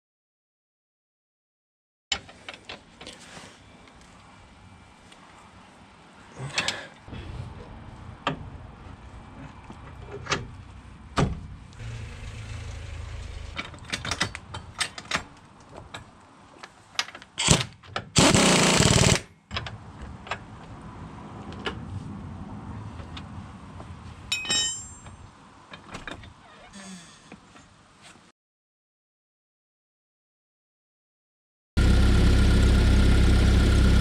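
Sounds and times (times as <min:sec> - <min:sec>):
loud burst: 0:18.2 - 0:19.2.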